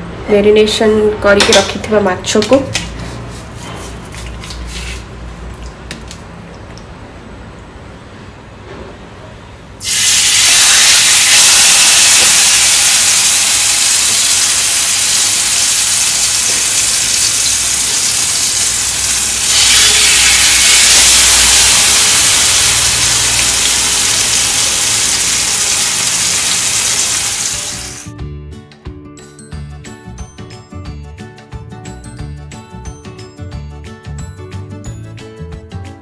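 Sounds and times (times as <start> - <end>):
fish sizzling in hot oil: 9.8 - 28.1.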